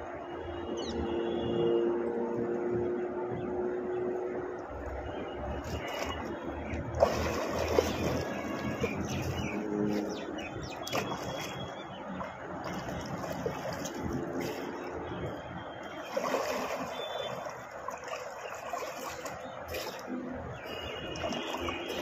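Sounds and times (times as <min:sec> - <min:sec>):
water splashing around swimmer: 0:04.7 - 0:22.0
river rushing: 0:07.0 - 0:11.6, 0:15.8 - 0:22.0.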